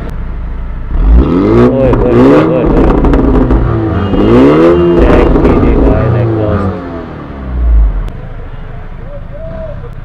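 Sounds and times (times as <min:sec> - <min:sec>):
car engine revving: 0:00.8 - 0:08.5.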